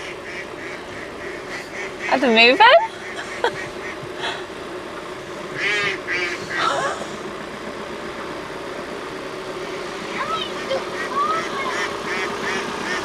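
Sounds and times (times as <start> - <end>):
ducks quacking: 0.0 - 4.5, 5.2 - 7.2, 9.6 - 13.0
idling engine hum: 0.0 - 13.0.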